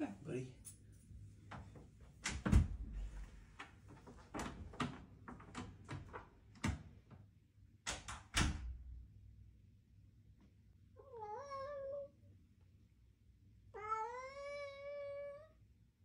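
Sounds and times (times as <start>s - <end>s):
low thud of door: 2.2s - 3.2s, 8.0s - 8.9s.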